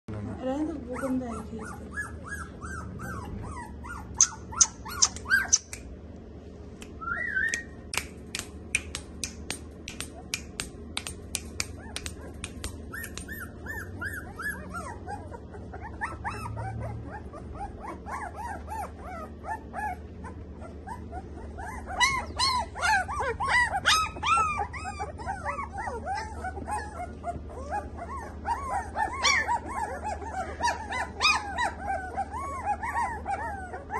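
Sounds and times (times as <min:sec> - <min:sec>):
puppies whimpering and squealing: 0:00.1 - 0:05.8, 0:11.4 - 0:33.9
sharp clicks: 0:04.2 - 0:05.9, 0:06.8 - 0:13.4.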